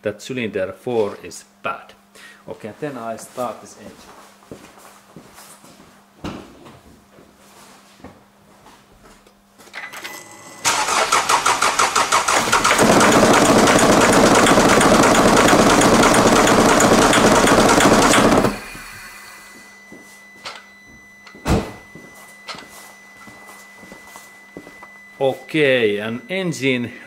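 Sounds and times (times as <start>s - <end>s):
starter cranking engine: 10.6s - 18.8s
diesel engine running: 10.6s - 19.5s.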